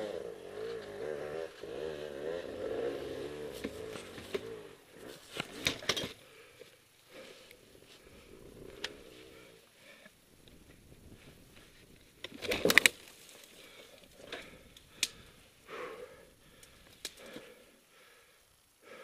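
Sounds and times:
heavy breathing: 6.0s - 10.3s, 13.4s - 19.0s
dirt bike clicking: 8.7s - 9.1s, 10.4s - 15.4s.

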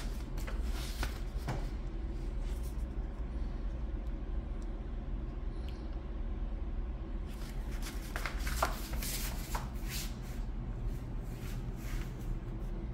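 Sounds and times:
rustling handling noise: 0.0s - 3.0s, 7.3s - 12.4s
low steady hum: 0.0s - 12.9s.

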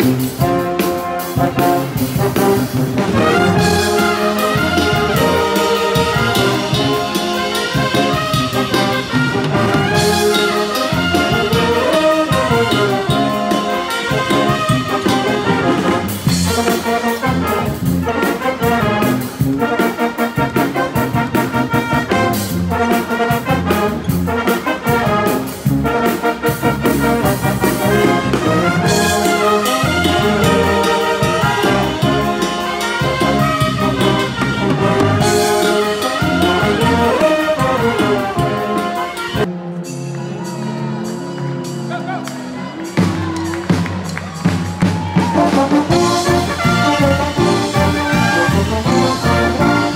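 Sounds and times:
steady drum beat: 0.0s - 39.7s, 41.8s - 49.9s
brass band playing: 0.0s - 49.9s.

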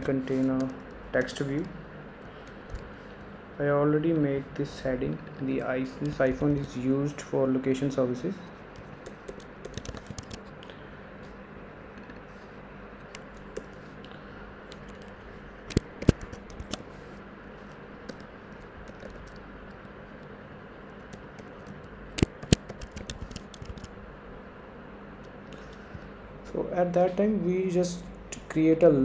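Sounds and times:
faint background hum: 0.0s - 29.0s
typing on a computer keyboard: 8.8s - 10.6s, 14.7s - 16.8s, 18.0s - 19.9s, 21.0s - 23.9s.

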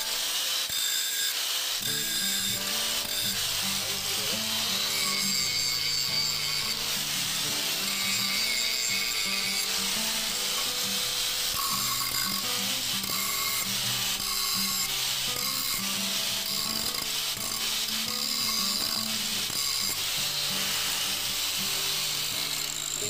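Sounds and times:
angle grinder grinding nail: 0.0s - 23.0s
background music: 1.8s - 17.0s, 19.9s - 23.0s.

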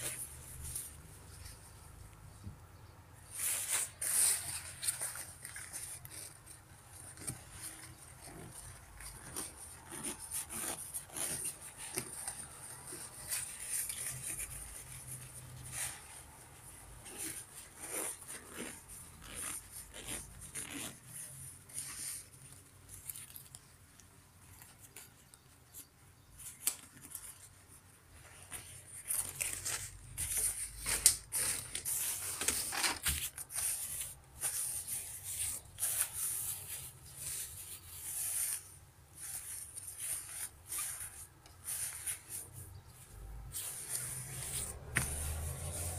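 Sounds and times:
nylon jacket rustling: 3.3s - 22.3s, 43.4s - 45.9s.

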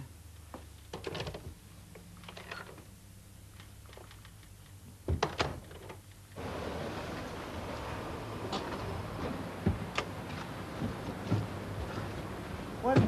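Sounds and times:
soft clicks and rustles: 3.5s - 5.0s
wooden door shutting: 5.1s - 5.9s.

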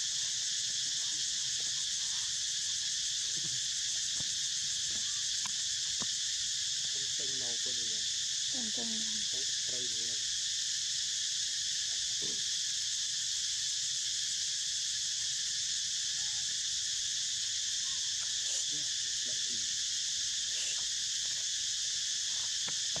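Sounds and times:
high-pitched insect chorus: 0.0s - 23.0s.

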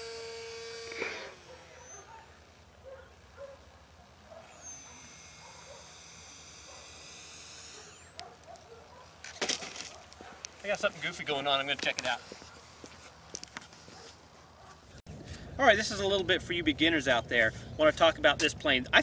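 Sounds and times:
high-pitched whine: 0.0s - 2.1s, 4.4s - 8.2s
model plane motor and propeller: 0.0s - 2.1s, 4.4s - 8.7s.

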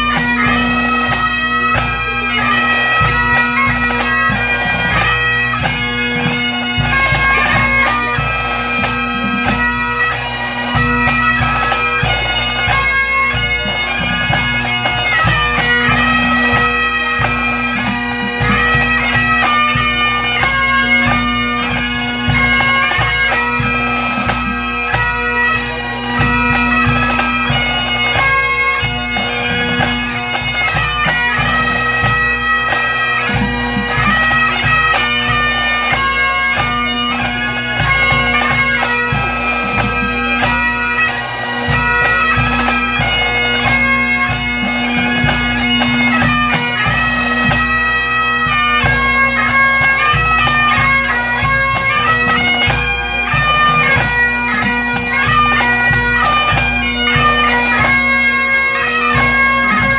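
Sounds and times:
drums beating: 0.0s - 20.0s
bagpipes playing: 0.0s - 59.9s.

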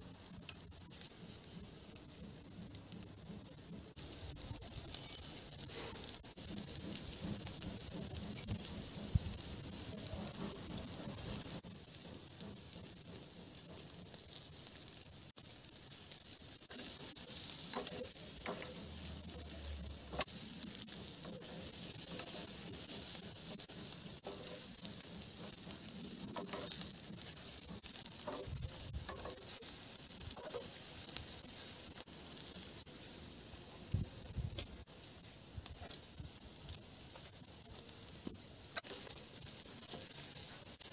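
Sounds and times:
meat sizzling on a charcoal grill: 0.0s - 40.9s
tongs clicking on a grate: 16.0s - 30.8s.

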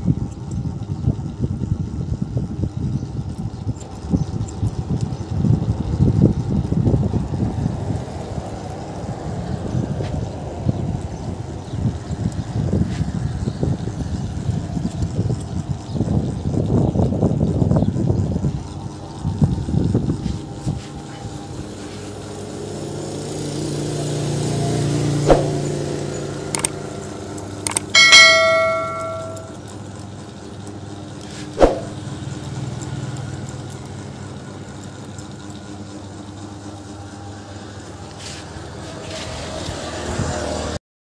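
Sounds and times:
loud metallic ring: 25.3s - 25.7s, 27.8s - 29.7s, 31.6s - 32.0s
sharp clicks: 26.5s - 26.8s, 27.6s - 29.6s.

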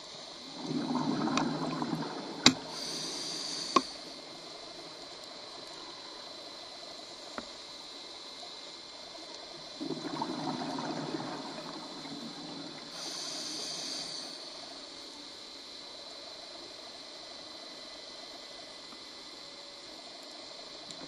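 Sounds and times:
regulator inhalation hiss: 0.0s - 20.9s
steady underwater hiss: 0.0s - 21.0s
exhaled bubbles gurgling: 0.3s - 6.3s, 9.4s - 15.0s
faint click: 2.4s - 2.7s, 3.6s - 4.0s, 7.2s - 7.6s, 9.2s - 9.5s, 18.9s - 19.1s, 20.2s - 21.0s.

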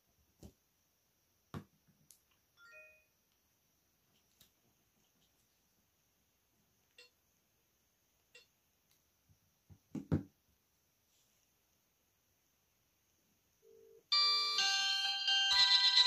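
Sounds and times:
electronic ringtone melody: 14.1s - 16.0s.

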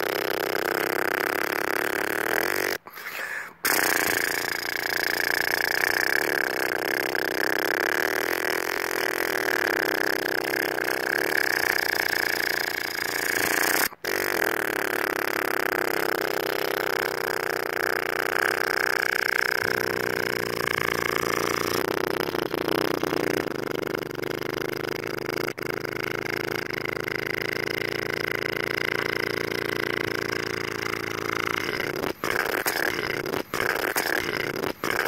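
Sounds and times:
motorcycle engine droning: 3.7s - 35.0s.

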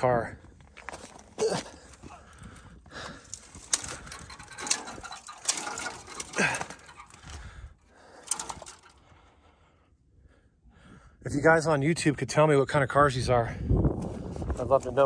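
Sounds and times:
footsteps on gravel: 0.5s - 4.5s.

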